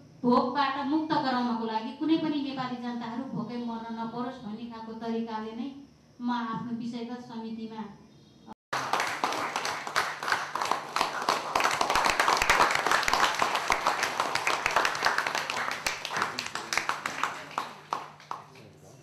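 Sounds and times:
audience applauding: 0:08.7 - 0:18.6.

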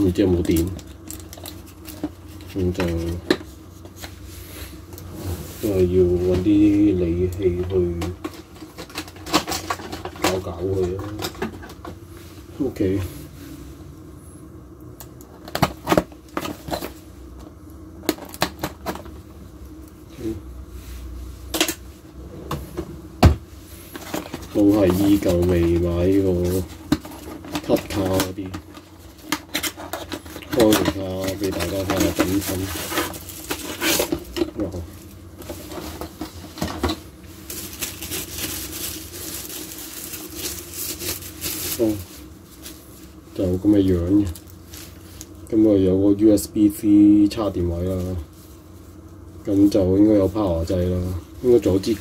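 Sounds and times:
steady low hum: 0:00.0 - 0:52.0
box and packing rustling: 0:22.5 - 0:45.2.

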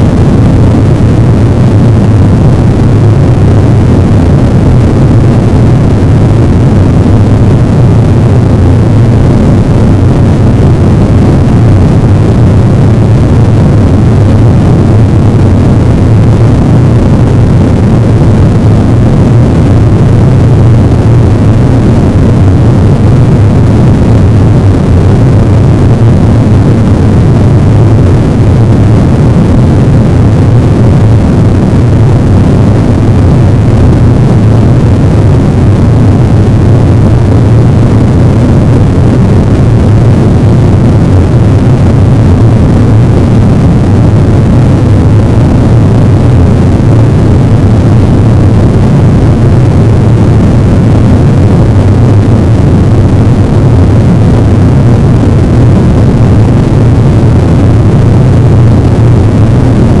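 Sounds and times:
dense wall of rumbling noise: 0:00.0 - 1:00.0.

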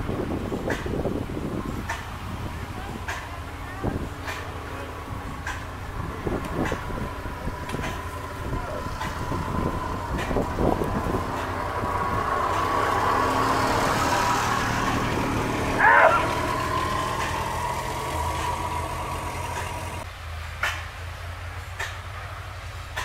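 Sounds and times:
engine idling: 0:00.0 - 0:23.0
steady whine: 0:02.5 - 0:20.1
wavering squeal: 0:06.8 - 0:20.0.

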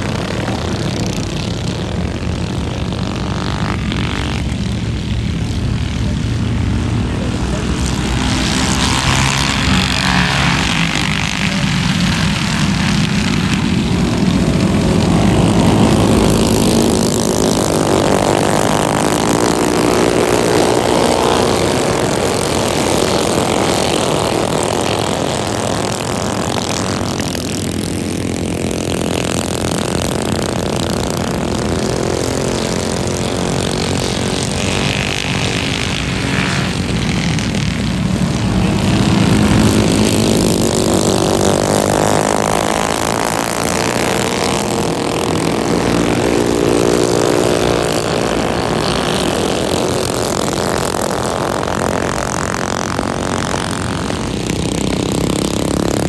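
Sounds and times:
mini bike engines buzzing: 0:00.0 - 0:56.0.

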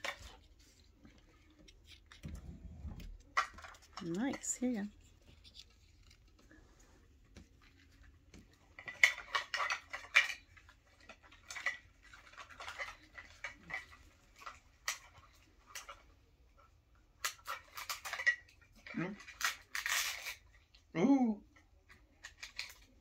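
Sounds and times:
plastic packaging crinkling: 0:17.2 - 0:20.6.

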